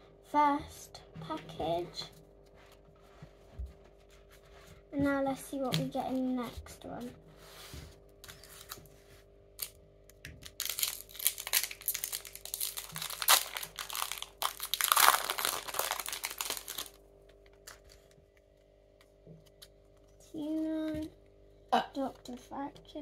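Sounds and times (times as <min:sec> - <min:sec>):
foil wrapper crinkling and tearing: 0:09.6 - 0:18.2.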